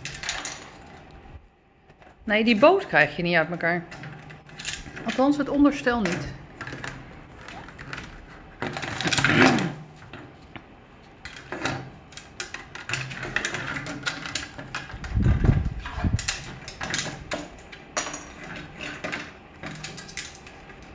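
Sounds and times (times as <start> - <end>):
plastic scraping on wood: 6.0 - 10.6.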